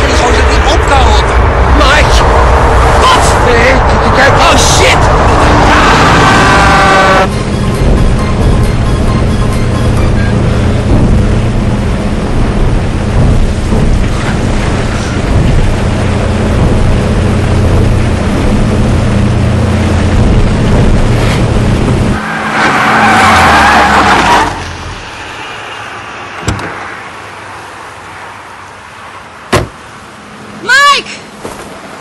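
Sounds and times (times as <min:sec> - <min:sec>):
small aircraft cabin drone: 0:00.0 - 0:22.2
car skidding on grass: 0:22.1 - 0:26.3
car door shutting: 0:26.4 - 0:26.8, 0:29.5 - 0:29.8.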